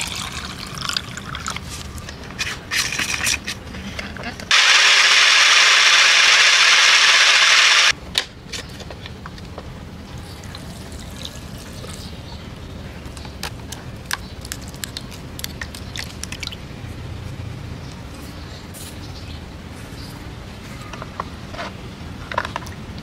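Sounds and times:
countertop blender running: 4.5 - 7.9
dripping: 14.4 - 16.6.

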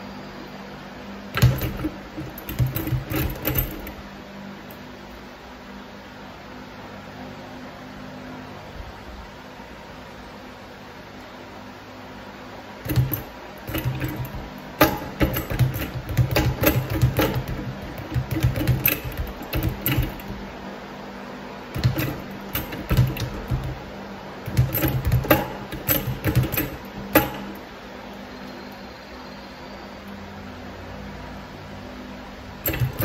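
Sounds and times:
speed bag rattling: 1.4 - 4.0, 12.9 - 20.4, 21.8 - 23.9, 24.5 - 27.6, 32.6 - 33.0.

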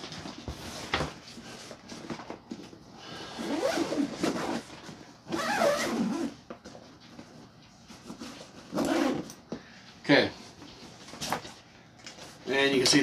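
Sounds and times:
zipper rasping: 3.3 - 4.7, 5.3 - 6.4, 8.6 - 9.3.

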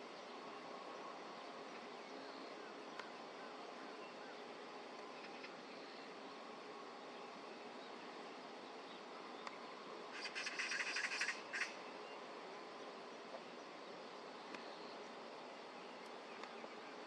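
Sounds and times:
faint background hum: 0.0 - 17.0
pheasant wingbeats whirring: 10.2 - 11.8.

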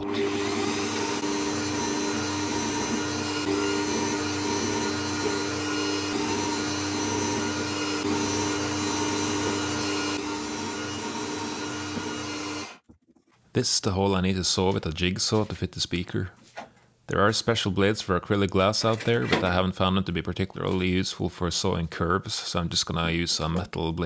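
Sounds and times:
drill bit drilling acrylic: 0.0 - 12.8
drill press motor running: 0.0 - 12.8.

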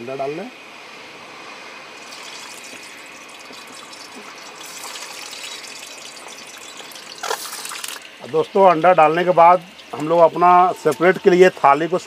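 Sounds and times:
oil crackling pops: 2.0 - 9.0
eggs frying in hot oil: 2.0 - 10.8.

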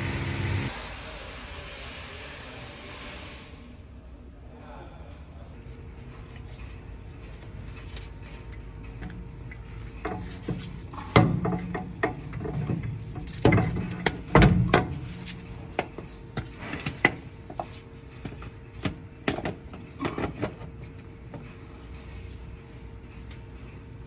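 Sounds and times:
metal knocks and scrapes: 7.8 - 22.2.

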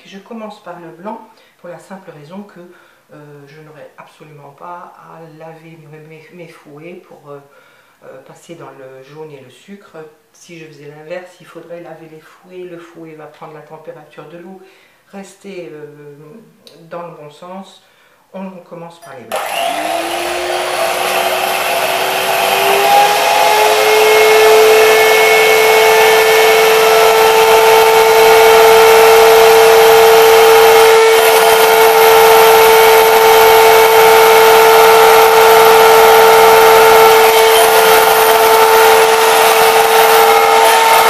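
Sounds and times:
electric hand mixer whirring: 19.3 - 41.0.

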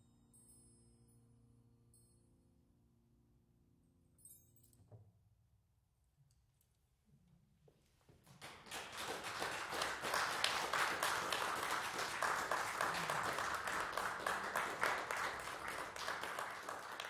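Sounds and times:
audience applause: 8.3 - 17.0.

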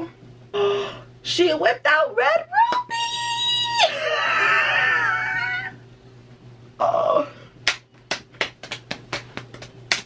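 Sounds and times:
woman squealing: 2.5 - 5.8
hand smack: 7.6 - 10.0.

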